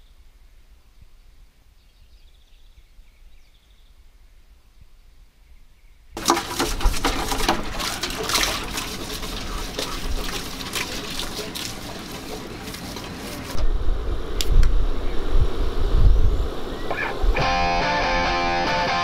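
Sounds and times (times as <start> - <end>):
water sloshing and splashing: 6.2 - 13.7
deep low rumble: 13.6 - 17.5.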